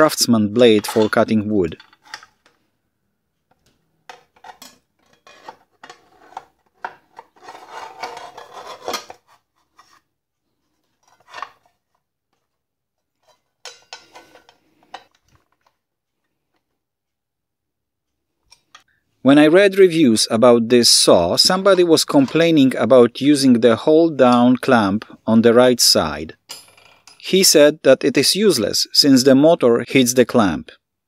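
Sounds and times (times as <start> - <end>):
metal saw blade scraping and clicking: 4.1 - 9.2, 13.2 - 15.2.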